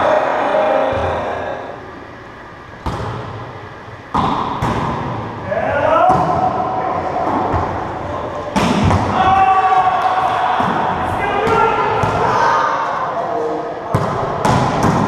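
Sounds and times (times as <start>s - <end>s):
players calling out: 5.4s - 14.4s.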